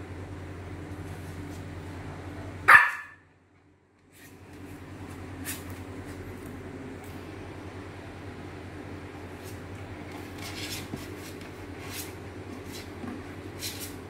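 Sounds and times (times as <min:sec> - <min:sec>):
puppy barking: 0:02.6 - 0:03.3.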